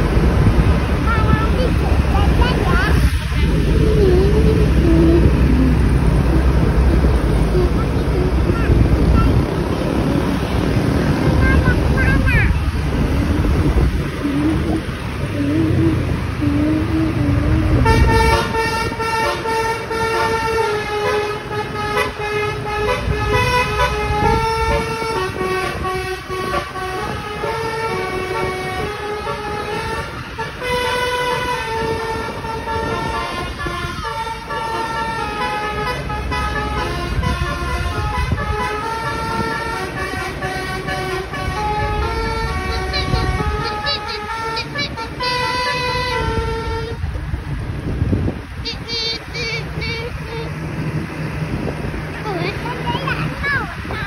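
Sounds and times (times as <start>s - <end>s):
road noise: 0.0s - 54.0s
musical bus horn melody: 17.8s - 47.2s, 48.6s - 50.6s.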